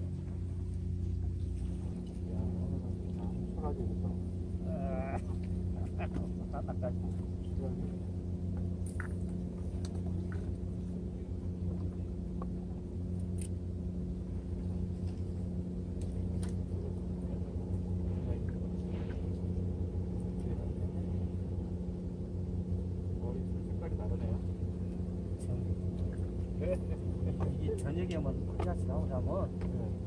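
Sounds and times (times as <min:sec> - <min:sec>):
engine humming: 0:00.0 - 0:30.0.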